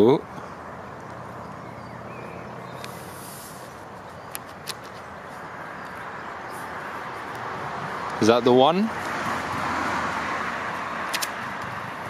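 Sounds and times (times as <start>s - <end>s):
outdoor background noise: 0.0s - 12.0s
brief hiss: 2.9s - 3.7s.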